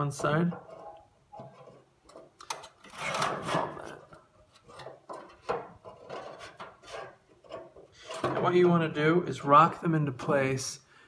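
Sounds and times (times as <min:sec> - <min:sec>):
metal tube scraping against metal: 0:00.0 - 0:08.7.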